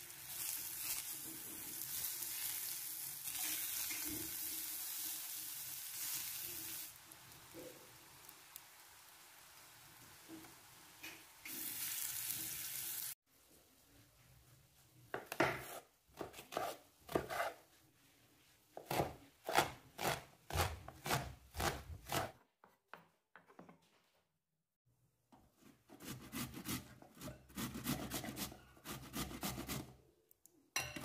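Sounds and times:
knife chopping vegetables: 15.1s - 17.6s, 18.8s - 23.1s, 25.6s - 30.0s.

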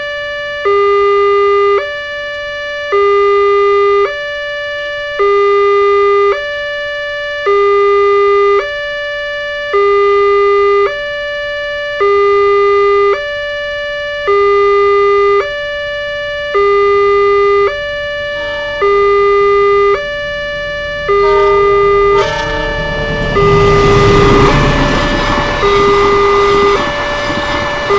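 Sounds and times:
level crossing two-tone alarm: 0.0s - 27.9s
approaching train: 17.5s - 27.9s.

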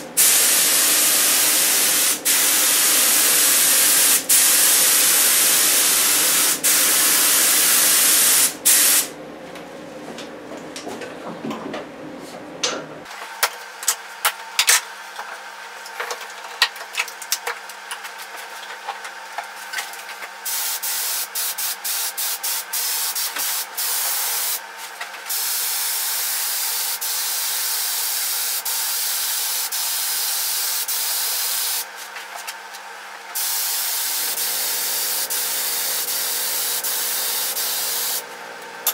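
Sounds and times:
spray gun hissing: 0.2s - 9.1s, 20.5s - 24.6s, 25.3s - 31.8s, 33.4s - 38.2s.

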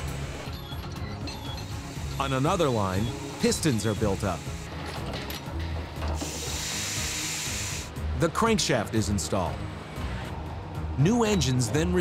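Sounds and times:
compressed air hissing: 1.6s - 4.9s, 6.1s - 8.0s.

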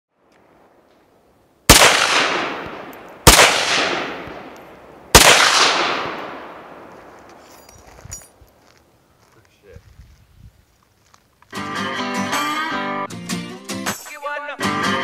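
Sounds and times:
rifle shots with echo: 1.7s - 7.4s.

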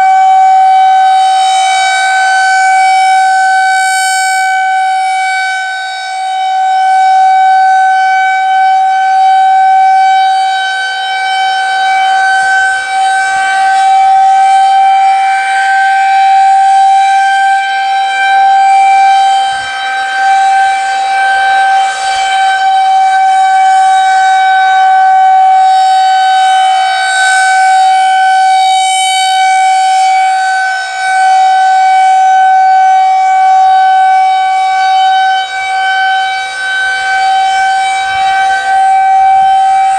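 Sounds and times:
rotating warning siren steady tone: 0.0s - 39.9s.

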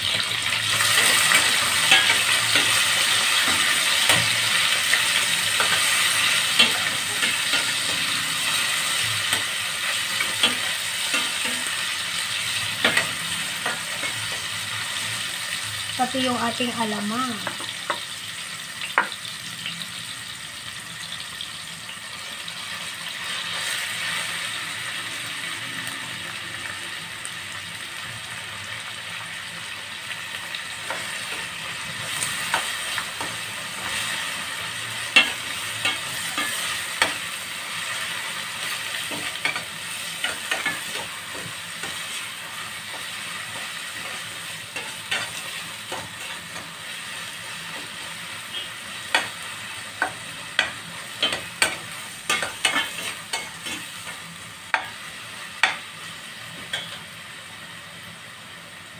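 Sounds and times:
food frying in oil: 0.0s - 58.9s
metal spoon scraping pan: 50.0s - 53.9s.

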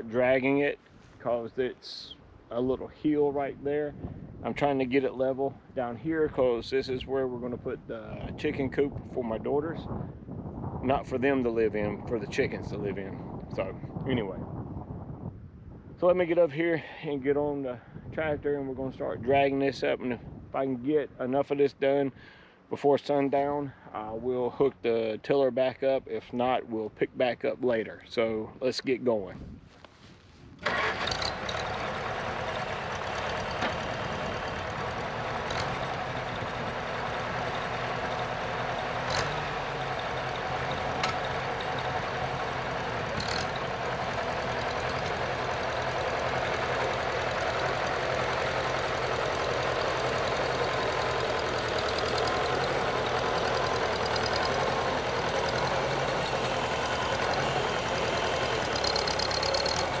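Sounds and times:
tractor engine running: 30.6s - 60.0s.

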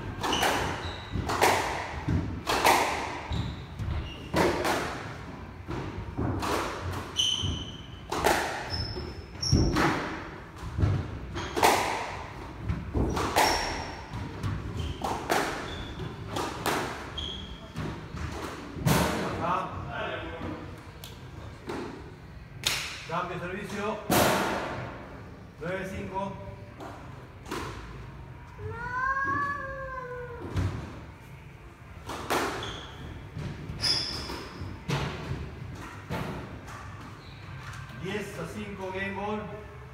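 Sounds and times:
squash ball hits: 0.1s - 5.1s, 5.7s - 8.8s, 9.4s - 17.1s
shoes squeaking on wooden floor: 3.2s - 4.4s, 7.1s - 10.0s, 13.0s - 16.4s, 17.1s - 18.2s, 32.6s - 34.9s.

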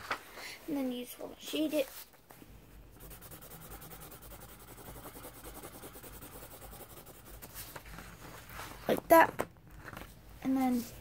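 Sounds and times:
pencil scratching on paper: 2.9s - 7.8s.

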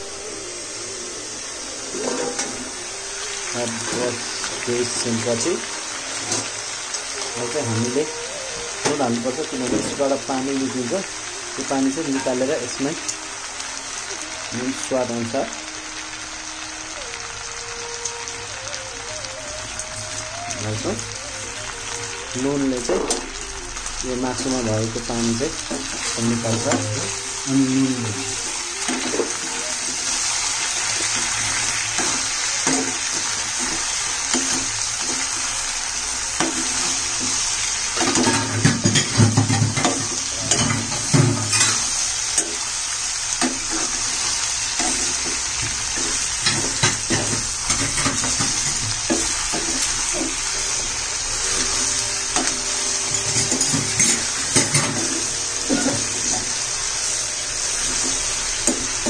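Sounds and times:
meat sizzling in a pan: 0.0s - 59.0s
spatula scraping metal pan: 1.9s - 2.7s.

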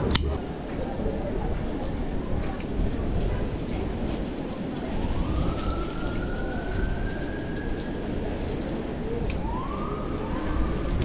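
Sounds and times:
bicycle tyres hissing on wet pavement: 0.4s - 11.0s
wind rushing: 0.4s - 11.0s
siren wailing: 0.5s - 11.0s.

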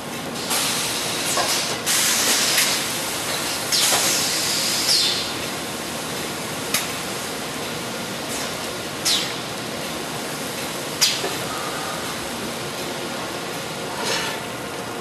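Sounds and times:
hot forging die hissing: 0.4s - 5.3s, 13.9s - 14.5s.

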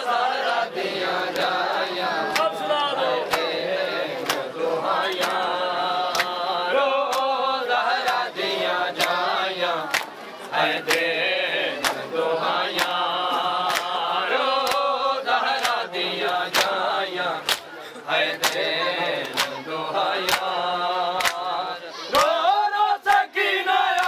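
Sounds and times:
men chanting a lament: 0.0s - 24.0s
hands slapping chests: 4.2s - 4.5s, 6.1s - 6.4s, 7.1s - 7.4s, 9.0s - 9.3s, 9.9s - 10.2s, 12.7s - 13.0s, 13.6s - 14.0s, 14.6s - 14.9s, 15.5s - 16.8s, 17.4s - 17.7s, 18.4s - 18.6s, 19.2s - 19.6s, 20.2s - 20.6s, 21.2s - 21.5s.

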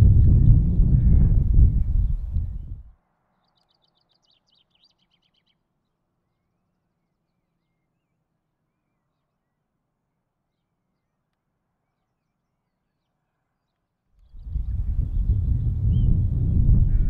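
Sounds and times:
songbird trill: 0.0s - 17.0s
faint bird chirps: 0.3s - 17.0s.

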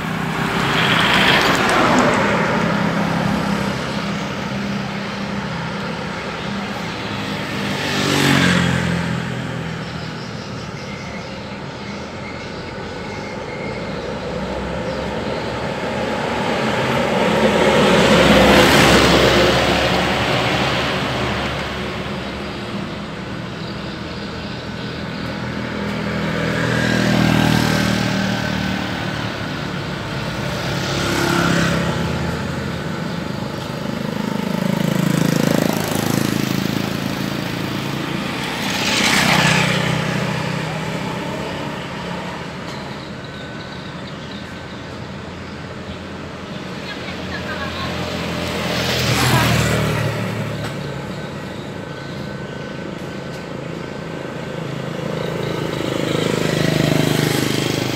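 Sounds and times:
vehicles passing: 0.0s - 57.9s.

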